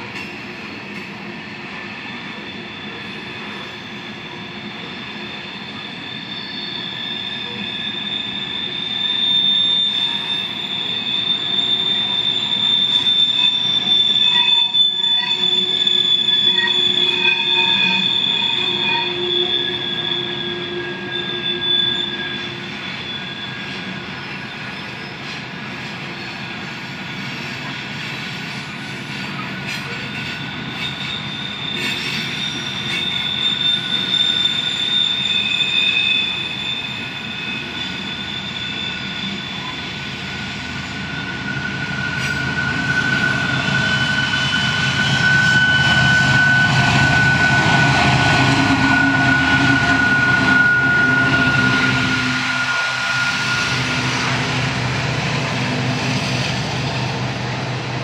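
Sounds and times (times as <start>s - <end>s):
diesel locomotives rumbling: 0.0s - 58.0s
train wheels squealing: 0.0s - 58.0s
freight cars rumbling: 38.7s - 58.0s.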